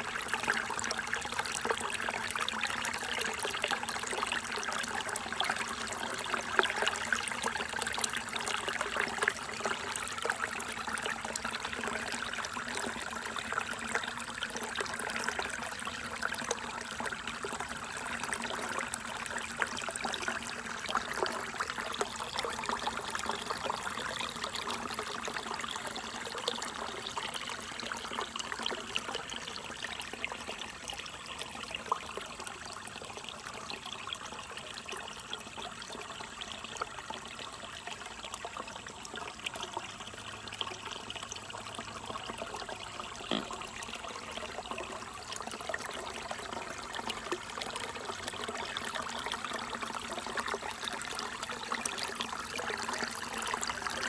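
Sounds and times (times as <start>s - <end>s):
small cascade pouring into pool: 0.0s - 54.0s
creek water splashing over rocks: 41.4s - 54.0s.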